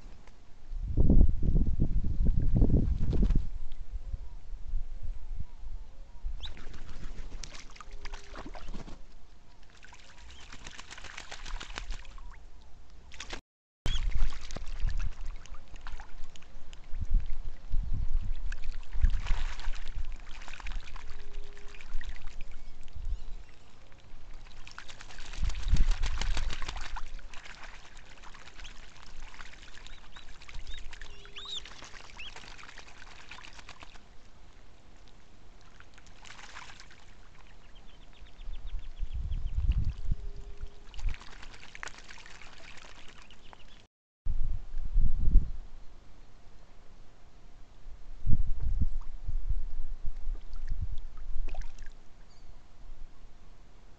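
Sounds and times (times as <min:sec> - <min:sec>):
wings flapping: 0:02.8 - 0:03.5, 0:06.4 - 0:12.3, 0:13.1 - 0:14.9, 0:24.4 - 0:34.0, 0:36.1 - 0:37.0, 0:40.9 - 0:43.6
ducks splashing in water: 0:06.4 - 0:12.4, 0:13.1 - 0:17.6, 0:18.4 - 0:22.6, 0:24.0 - 0:34.3, 0:35.6 - 0:37.7, 0:40.8 - 0:43.8.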